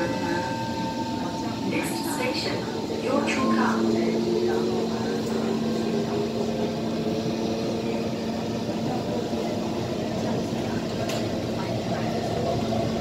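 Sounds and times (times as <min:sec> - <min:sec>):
constant hum: 0:00.0 - 0:13.0.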